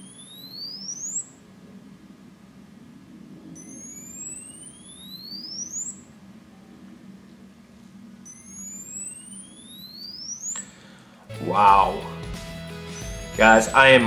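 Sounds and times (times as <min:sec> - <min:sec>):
rising electronic alert tone: 0:08.3 - 0:10.5.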